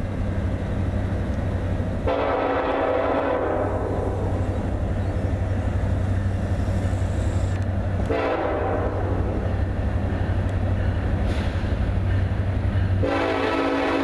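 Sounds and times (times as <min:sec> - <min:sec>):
locomotive air horn blasts: 0:02.0 - 0:04.3, 0:08.0 - 0:09.3, 0:13.0 - 0:14.0.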